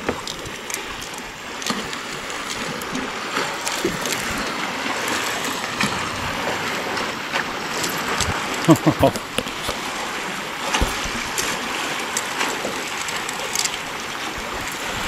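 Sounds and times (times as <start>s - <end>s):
water lapping against kayak: 0.0s - 15.0s
small knocks on hull: 10.6s - 15.0s.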